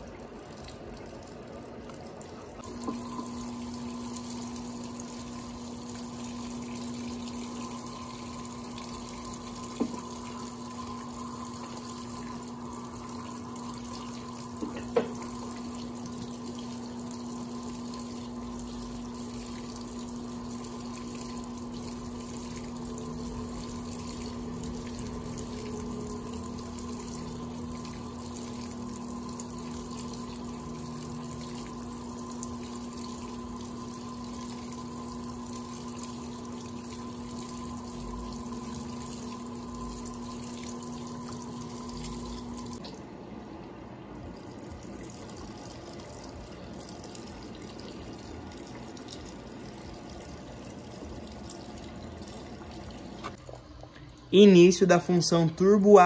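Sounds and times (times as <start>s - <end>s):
washing machine hum: 0.0s - 56.0s
water running into washing machine: 0.0s - 56.0s.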